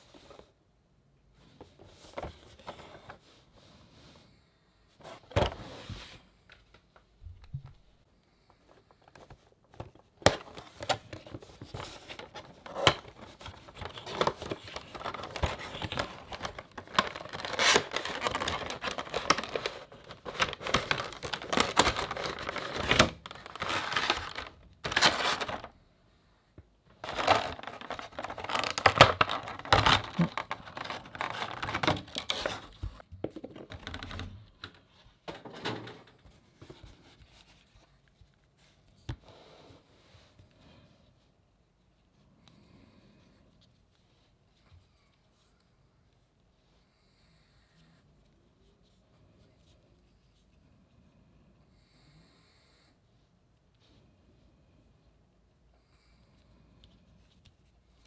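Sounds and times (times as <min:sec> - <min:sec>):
plastic insert crinkling and scraping: 0:08.7 - 0:25.8, 0:26.9 - 0:37.7.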